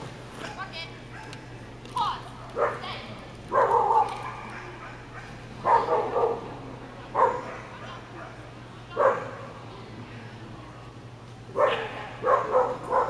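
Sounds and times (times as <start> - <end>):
dog barking: 1.1 - 1.4, 2.6 - 8.4, 9.0 - 9.5, 11.6 - 13.0.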